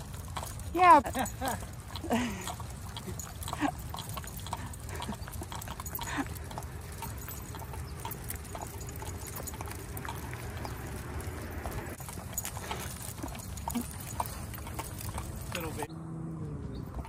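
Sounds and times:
dog claws clicking on asphalt: 0:04.0 - 0:15.8.

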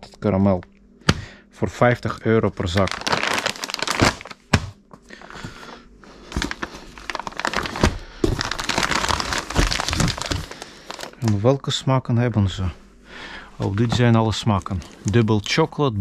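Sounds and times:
plastic bags crinkling: 0:02.6 - 0:04.6, 0:05.2 - 0:11.4, 0:13.6 - 0:15.6.

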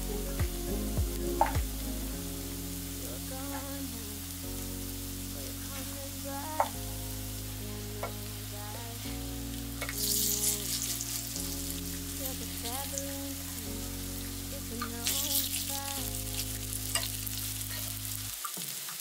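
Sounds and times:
soft background music: 0:00.0 - 0:18.4
pancakes sizzling in hot oil: 0:09.9 - 0:13.1, 0:14.2 - 0:19.0.

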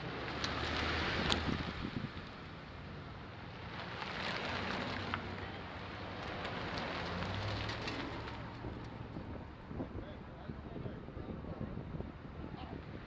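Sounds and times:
wind on microphone: 0:00.8 - 0:02.3, 0:08.4 - 0:13.0.

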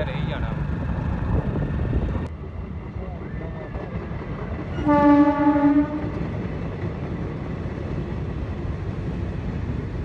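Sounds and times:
train coaches rumbling past: 0:00.0 - 0:10.0
train horn low pitch: 0:04.8 - 0:06.2.

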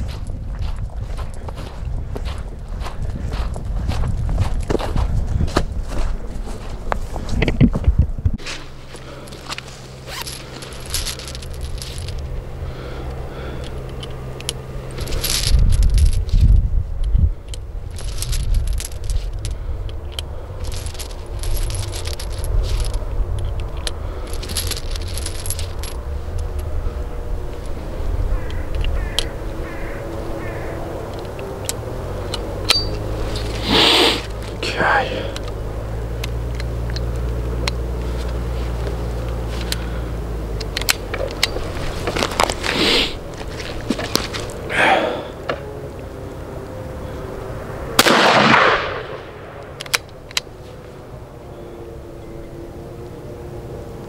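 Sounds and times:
low rumble: 0:00.0 - 0:40.2
revolver metallic clicks: 0:27.5 - 0:33.6, 0:35.3 - 0:42.6, 0:47.4 - 0:50.5
cartridges clicking against metal: 0:30.4 - 0:33.5.

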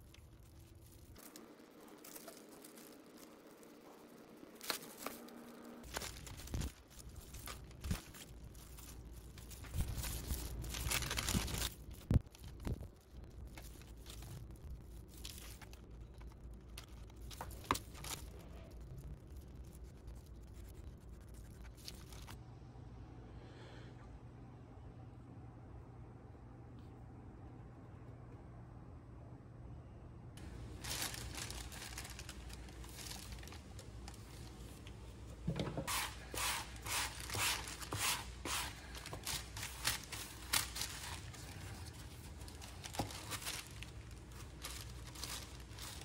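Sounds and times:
plastic sheet crinkling: 0:00.0 - 0:22.4, 0:30.4 - 0:46.0
putty knife scraping: 0:35.5 - 0:39.2.

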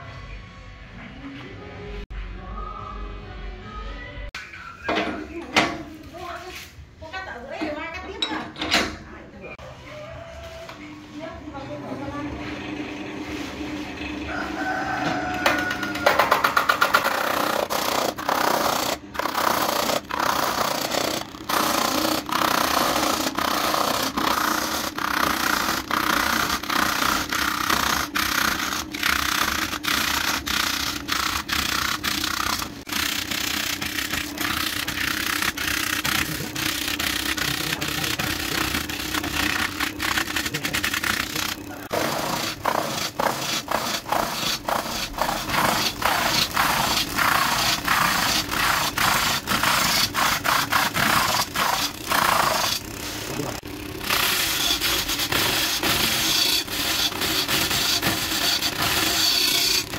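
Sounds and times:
turning tool scraping wood: 0:14.3 - 0:59.9.

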